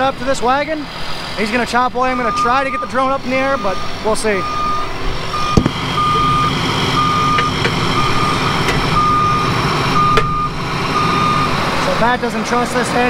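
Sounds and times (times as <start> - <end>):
engine running: 0.0 - 13.0
reversing alarm beeping: 2.1 - 11.6.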